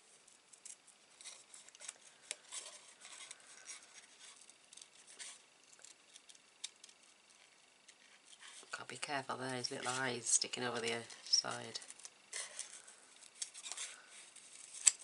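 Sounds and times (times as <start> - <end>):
scissors snipping paper: 10.7 - 15.0.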